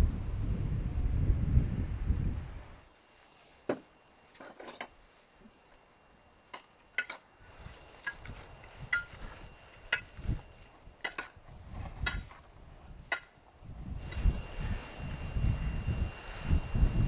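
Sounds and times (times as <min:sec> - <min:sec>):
salad leaves rustling: 0:07.4 - 0:12.8.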